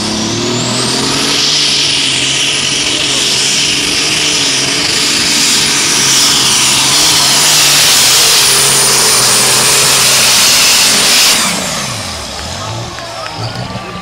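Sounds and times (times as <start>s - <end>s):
tractor engine at full power: 0.0s - 14.0s.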